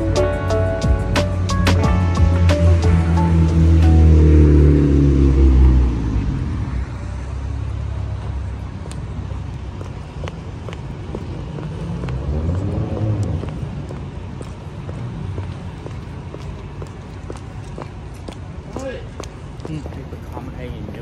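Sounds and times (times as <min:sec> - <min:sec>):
traffic noise: 0:00.0 - 0:21.0
vehicle passing close by: 0:01.4 - 0:14.2.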